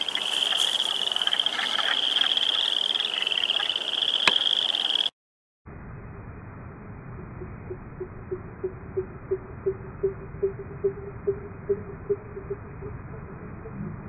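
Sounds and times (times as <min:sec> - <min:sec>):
frogs trilling: 0:00.0 - 0:05.1.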